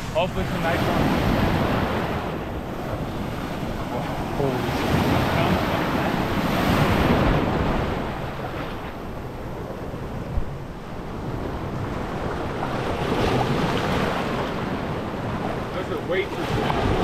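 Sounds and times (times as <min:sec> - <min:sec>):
small surf breaking: 0:00.0 - 0:09.7
wind on microphone: 0:00.0 - 0:17.0.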